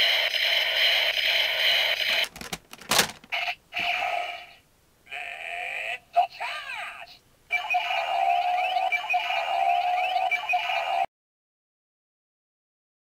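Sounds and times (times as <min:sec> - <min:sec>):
toy blaster electronic sound effects: 0:00.0 - 0:02.2, 0:07.5 - 0:11.1.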